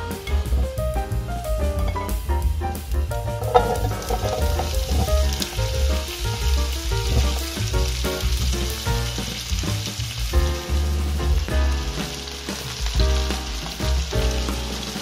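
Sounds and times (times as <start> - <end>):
background music: 0.0 - 15.0
food sizzling in frying pan: 3.1 - 15.0
food clattering into pan: 3.4 - 8.5.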